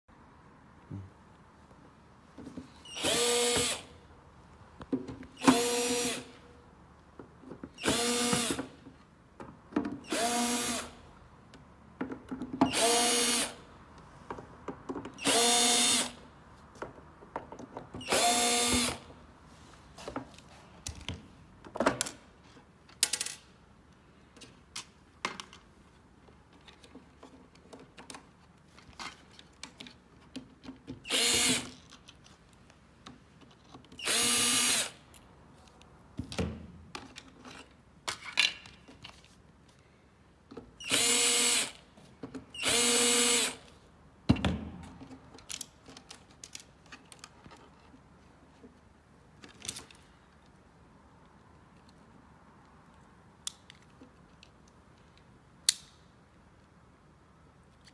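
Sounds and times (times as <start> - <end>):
cordless drill spinning screws: 2.9 - 3.9, 5.4 - 6.3, 7.8 - 8.6, 10.1 - 11.0, 12.7 - 13.6, 15.2 - 16.2, 18.0 - 19.0, 31.1 - 31.7, 34.0 - 35.0, 40.8 - 41.8, 42.6 - 43.7
plastic parts clicking and knocking: 11.5 - 12.7, 16.8 - 18.0, 44.3 - 48.0.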